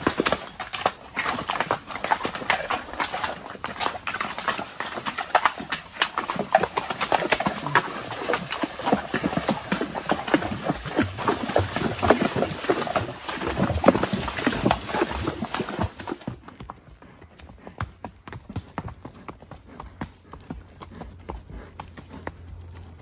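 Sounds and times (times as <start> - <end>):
horse hooves splashing in creek: 0.0 - 23.0.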